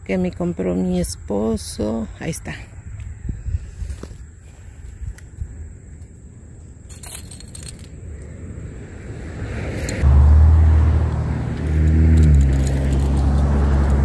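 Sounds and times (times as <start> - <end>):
rising rush of noise: 8.4 - 14.0.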